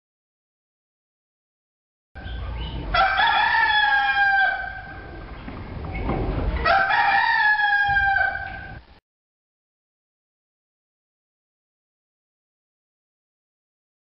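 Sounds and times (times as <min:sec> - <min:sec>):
rooster crowing: 0:02.9 - 0:05.1, 0:06.6 - 0:08.8.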